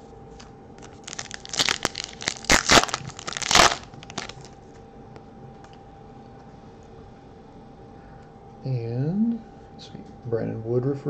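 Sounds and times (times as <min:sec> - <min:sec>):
foil wrapper tearing and crinkling: 0:00.8 - 0:04.6.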